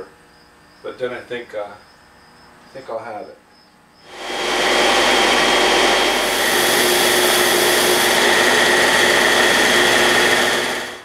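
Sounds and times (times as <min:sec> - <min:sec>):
power sander whining: 0:04.1 - 0:11.0.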